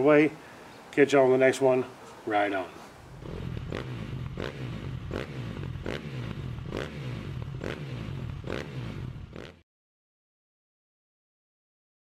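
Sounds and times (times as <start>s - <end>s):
low bass line: 3.1s - 9.4s.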